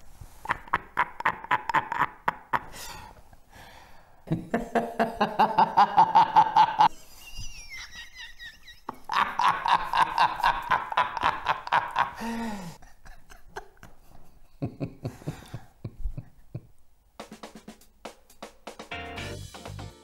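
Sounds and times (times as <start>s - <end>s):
men laughing: 0.5s - 2.8s, 4.3s - 16.7s.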